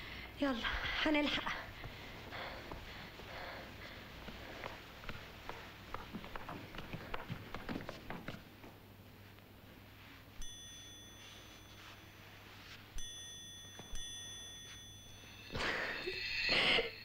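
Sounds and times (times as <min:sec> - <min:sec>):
rustling breathy noise: 0:01.6 - 0:05.6
steady high ringing tone: 0:09.9 - 0:17.0.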